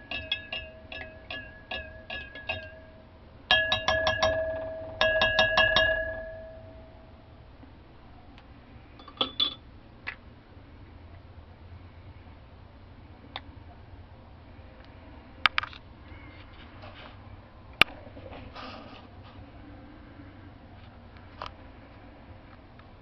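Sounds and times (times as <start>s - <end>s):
utensil clinking against glass: 0.0s - 6.7s, 9.0s - 9.6s.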